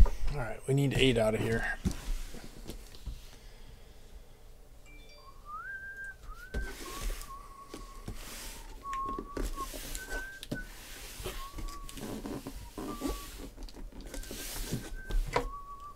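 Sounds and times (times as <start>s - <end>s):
person whistling: 4.9s - 13.5s, 14.1s - 15.9s
cardboard case scraping on table: 8.1s - 15.5s.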